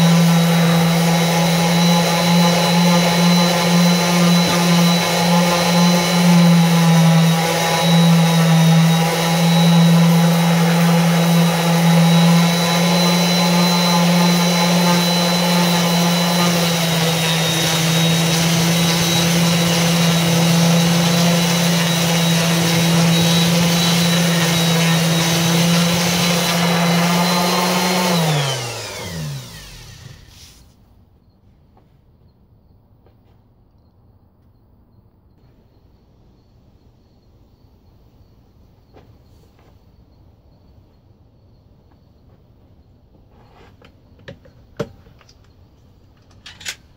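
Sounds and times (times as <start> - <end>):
orbital sander sanding wood: 0.0 - 30.7.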